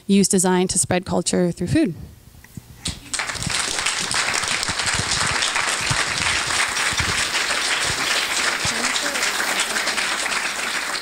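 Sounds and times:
audience applauding: 3.0s - 11.0s.

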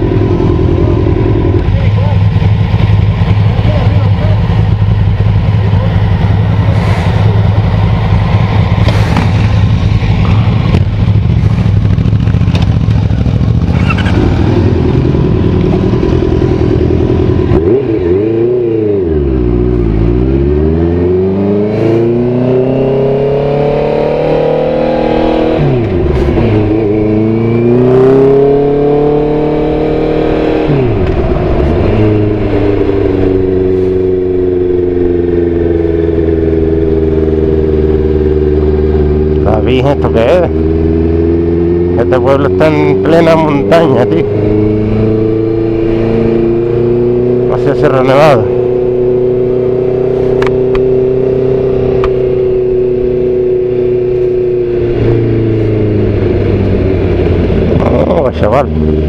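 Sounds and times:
motorcycle engine revving: 0.0s - 59.0s
wind rushing over microphone: 21.3s - 39.4s, 48.2s - 59.0s.

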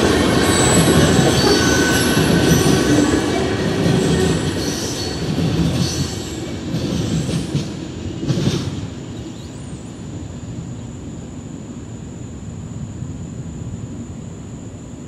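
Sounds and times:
train wheels clattering over rails: 0.0s - 9.5s
train wheels squealing: 0.0s - 10.0s.

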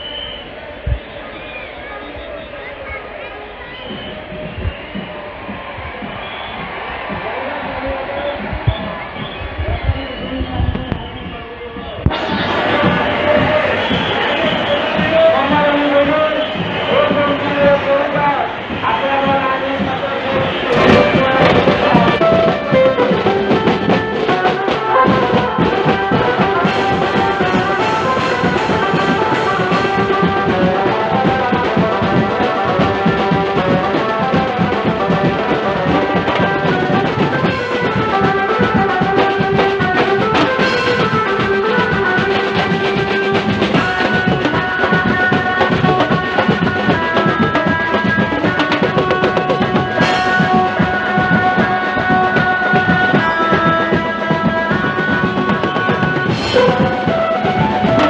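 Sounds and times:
drums and cymbals beating fast: 0.0s - 58.0s
sustained melody line: 20.7s - 58.0s.

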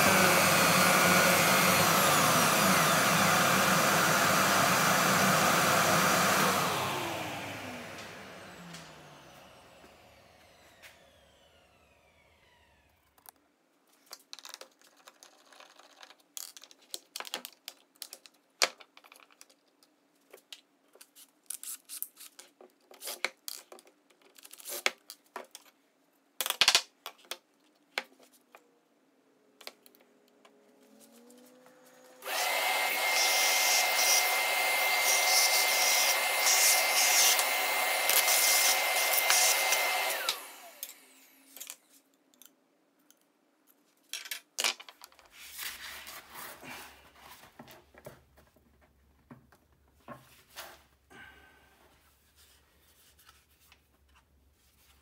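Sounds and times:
workshop vacuum whining: 0.0s - 13.2s, 30.0s - 41.8s.

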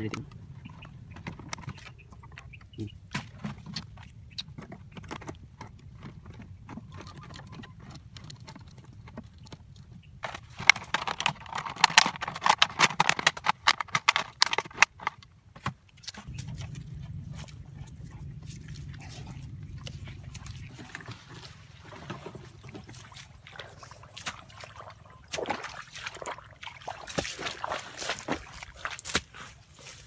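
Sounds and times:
plastic bottle crackling: 10.2s - 15.2s.

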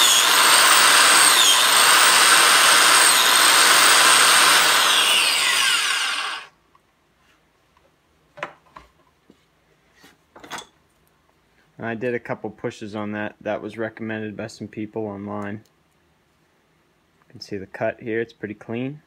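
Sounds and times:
biscuit joiner running: 0.0s - 6.5s.

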